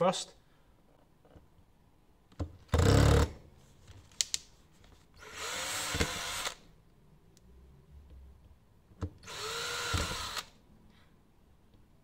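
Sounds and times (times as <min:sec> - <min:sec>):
cordless drill boring: 0:05.2 - 0:06.6, 0:09.2 - 0:10.6.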